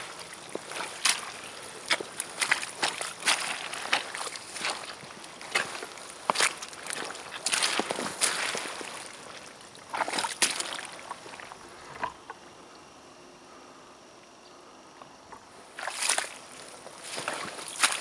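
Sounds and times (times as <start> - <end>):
waders squelching through mud: 0.0 - 11.7, 15.7 - 18.0.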